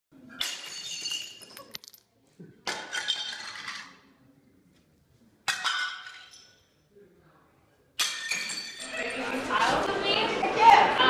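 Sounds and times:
shards clinking: 0.3s - 2.0s, 8.0s - 9.2s
ceramic tiles shattering: 0.3s - 2.1s, 2.7s - 4.0s, 5.5s - 6.7s, 8.0s - 9.0s.

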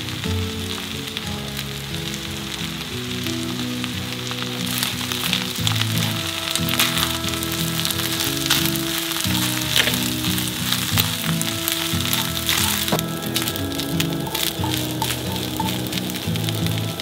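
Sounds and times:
food sizzling in a frying pan: 0.0s - 17.0s.

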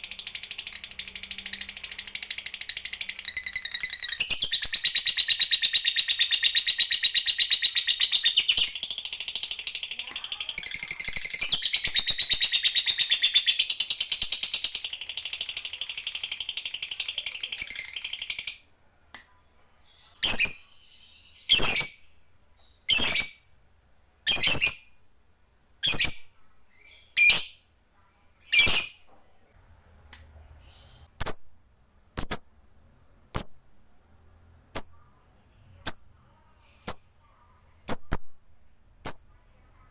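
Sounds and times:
lovebird chattering trill: 0.0s - 23.5s
lovebird sharp chirps: 0.0s - 23.6s, 24.3s - 25.1s, 25.8s - 27.8s, 28.4s - 29.2s, 30.6s - 39.9s.

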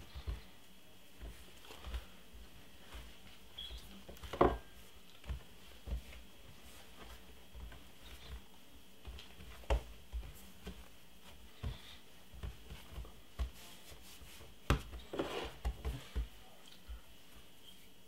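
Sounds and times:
hands kneading dough thumps: 0.0s - 17.4s.

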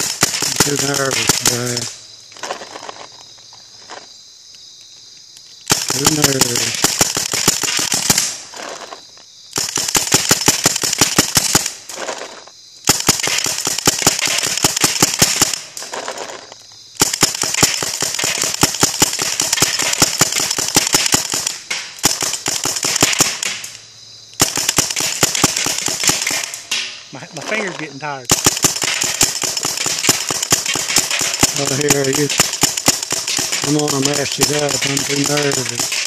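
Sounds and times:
paintball gun firing: 0.0s - 1.8s, 5.7s - 8.4s, 9.6s - 11.8s, 12.9s - 15.7s, 17.0s - 23.7s, 24.4s - 26.9s, 28.3s - 36.0s.

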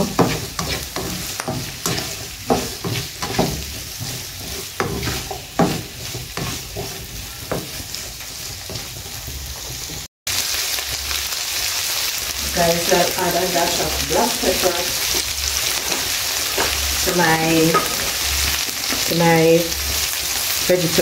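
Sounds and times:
spatula scraping a frying pan: 0.0s - 10.1s, 15.0s - 19.1s
vegetables sizzling in oil: 0.0s - 21.0s.

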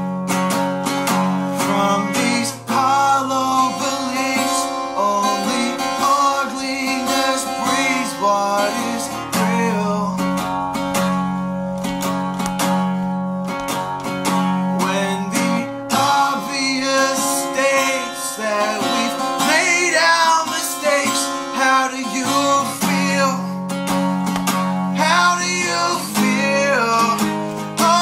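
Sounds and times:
acoustic guitar strumming: 0.0s - 28.0s
man singing: 1.4s - 10.6s, 14.7s - 23.6s, 24.9s - 28.0s.

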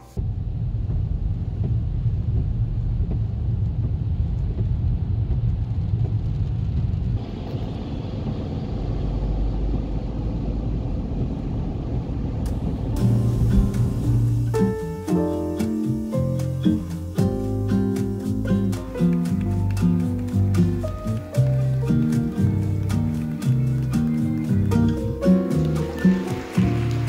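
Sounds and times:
engine and road rumble: 0.0s - 27.0s
plucked-string music: 12.9s - 27.0s.

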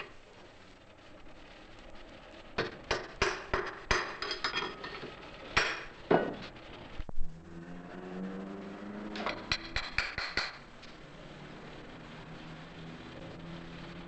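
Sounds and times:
hammer striking metal: 2.6s - 4.9s, 5.6s - 6.4s, 9.2s - 10.6s.

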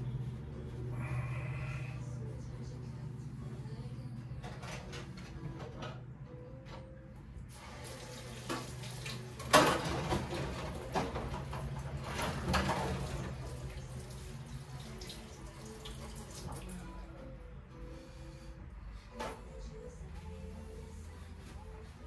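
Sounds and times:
faucet running into a sink: 7.6s - 9.6s.

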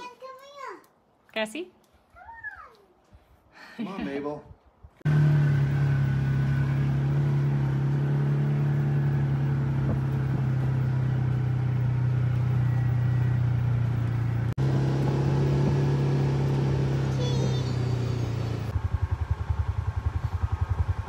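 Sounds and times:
vehicle engine droning: 5.0s - 21.0s.

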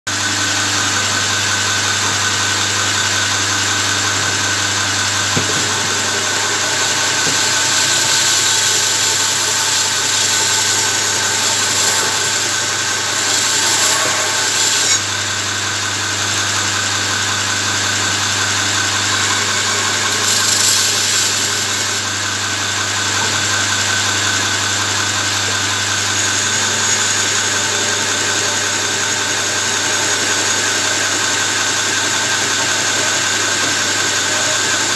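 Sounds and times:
belt grinder motor humming: 0.3s - 34.9s
steel grinding hiss: 3.0s - 15.3s, 18.8s - 22.8s.

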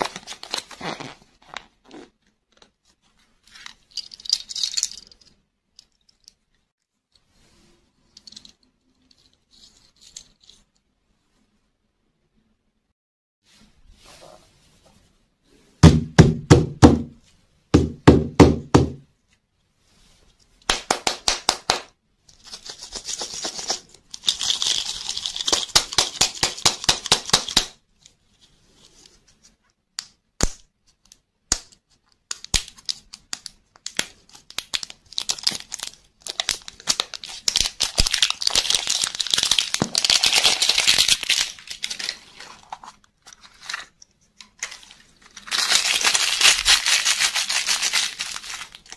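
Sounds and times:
plastic wrapper crinkling and tearing: 0.0s - 2.7s, 32.5s - 44.0s, 44.6s - 48.9s.

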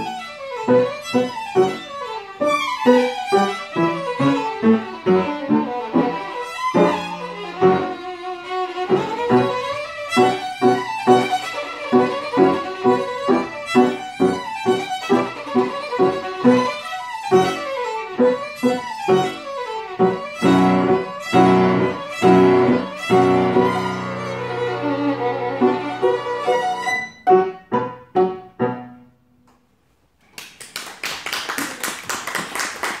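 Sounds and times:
violin and piano playing: 0.0s - 29.0s
applause: 30.2s - 33.0s.

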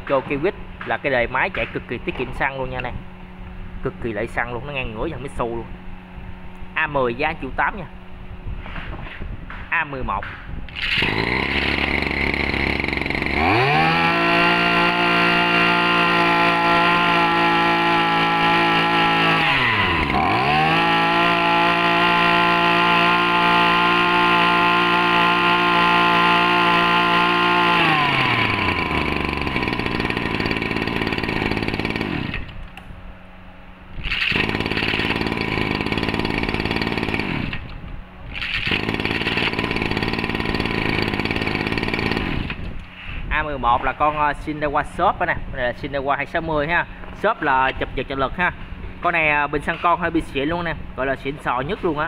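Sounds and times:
brush cutter engine running: 10.7s - 32.8s, 34.0s - 42.9s
recoil cord pull start: 10.7s - 32.8s, 34.0s - 42.9s.

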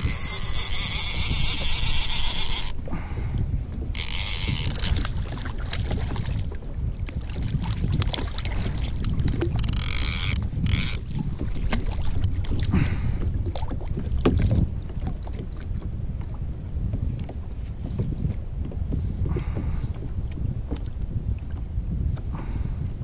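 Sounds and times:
fishing reel whirring: 0.0s - 2.8s, 3.9s - 5.1s, 9.0s - 11.1s
wind buffeting microphone: 0.0s - 23.0s.

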